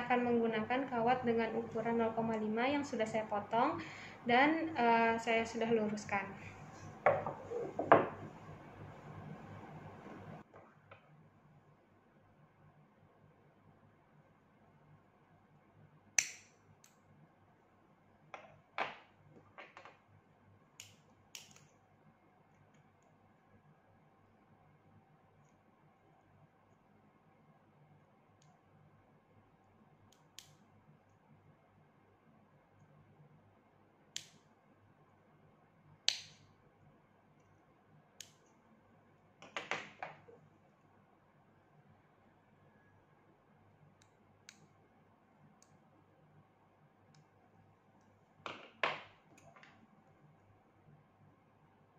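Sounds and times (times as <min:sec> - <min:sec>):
faint steady hum: 0:00.0 - 0:51.9
pliers clicking on wire: 0:20.8 - 0:21.7.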